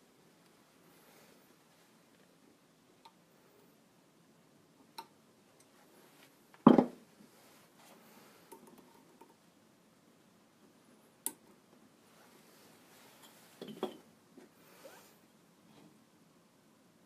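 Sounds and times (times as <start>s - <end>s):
faint rustling: 12.0s - 13.7s.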